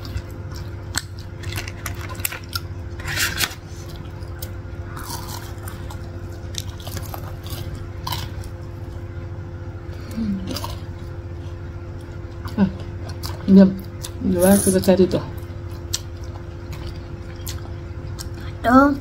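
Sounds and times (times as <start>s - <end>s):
chewing close to microphone: 0.0s - 8.6s.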